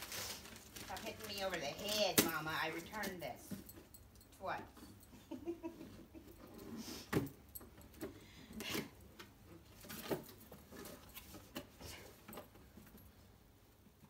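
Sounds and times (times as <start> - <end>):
paper crinkling and tearing: 0.0 - 2.0.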